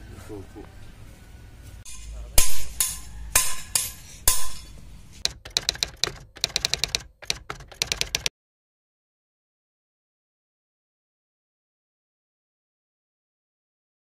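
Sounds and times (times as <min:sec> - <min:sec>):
hammer ringing on metal: 0:02.4 - 0:04.7
light rapid hammer taps: 0:05.2 - 0:08.3.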